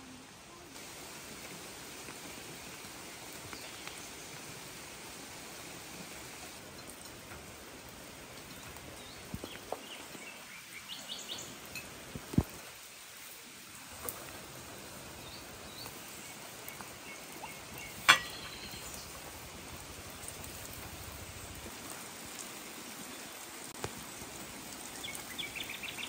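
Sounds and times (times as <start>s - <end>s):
light rain hiss: 0.0s - 26.0s
bird chirps: 15.3s - 19.2s.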